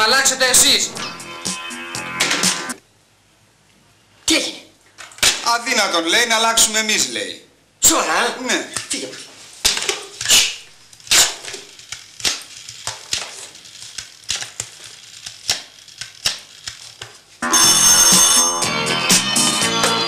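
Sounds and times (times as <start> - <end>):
sharp irregular clicks and knocks: 11.1 - 17.2.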